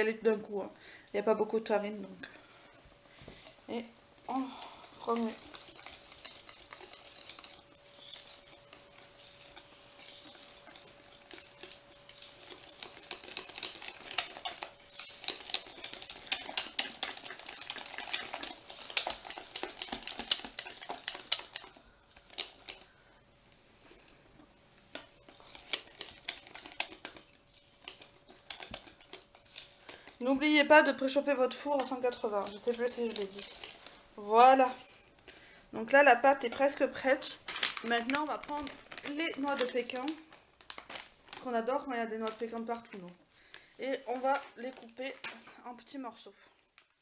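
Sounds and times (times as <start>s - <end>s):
whisk clicking and scraping bowl: 4.2s - 22.9s, 25.0s - 34.0s.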